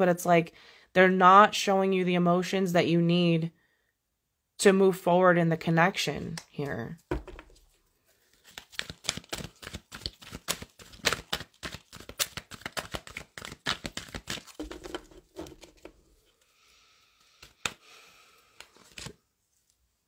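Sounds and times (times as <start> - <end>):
cards being shuffled: 6.4 - 16.0, 17.2 - 17.8, 18.5 - 19.2.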